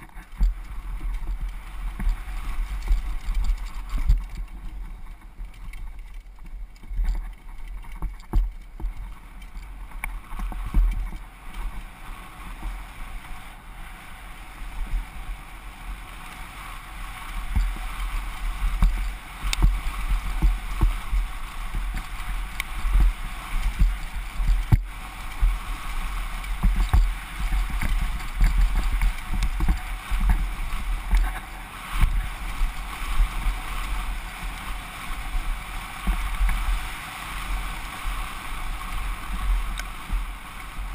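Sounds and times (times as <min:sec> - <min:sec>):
bike knocks and rattles: 0:00.0 - 0:12.0, 0:17.3 - 0:34.6
bike tyres on loose dirt: 0:00.0 - 0:40.9
wind buffeting camera: 0:00.0 - 0:40.9.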